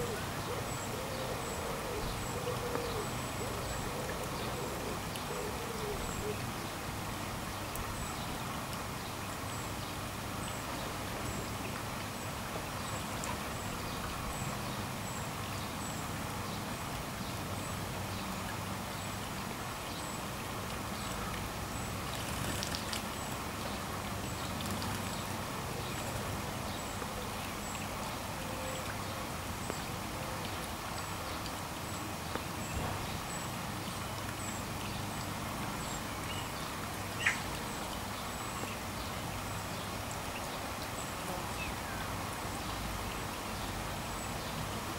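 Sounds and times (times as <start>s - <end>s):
fountain bubbling and splashing: 0.0s - 44.9s
bird splashing in water: 22.0s - 23.4s.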